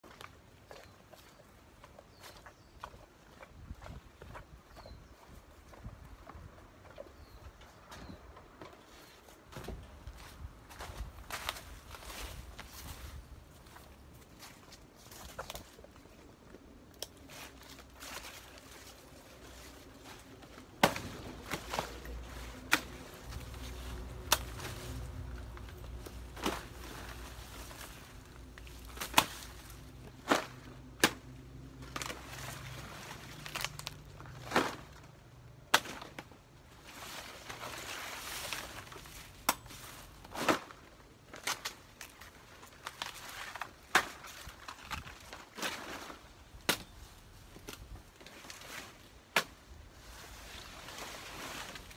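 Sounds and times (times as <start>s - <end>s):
leaves rustling: 8.8s - 51.9s
plant stalks chopped and cracking: 20.1s - 36.4s, 37.7s - 49.8s.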